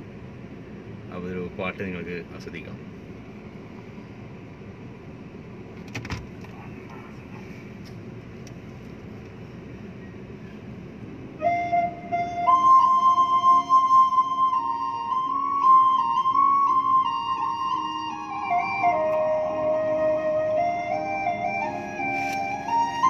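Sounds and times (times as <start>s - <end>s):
car cabin hum: 0.0s - 23.0s
flute-like melody: 11.3s - 23.0s.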